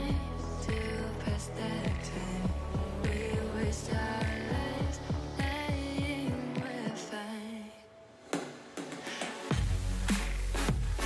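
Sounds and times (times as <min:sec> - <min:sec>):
deep bass and kick drum: 0:00.0 - 0:06.4, 0:09.5 - 0:11.0
electronic music: 0:00.0 - 0:07.3, 0:08.1 - 0:11.0.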